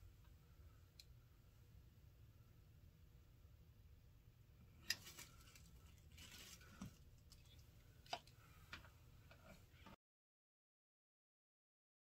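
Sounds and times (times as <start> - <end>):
soft hair rustle: 4.8 - 8.6.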